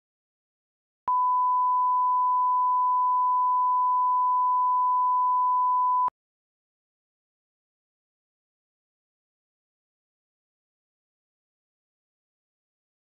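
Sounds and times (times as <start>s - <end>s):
steady pure test beep: 1.1s - 6.1s.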